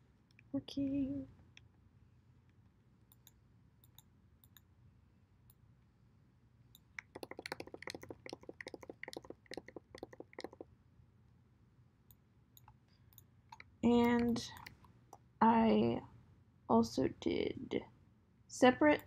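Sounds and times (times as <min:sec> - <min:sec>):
computer mouse clicks: 0:03.1 - 0:04.7, 0:06.7 - 0:10.7, 0:12.1 - 0:14.9.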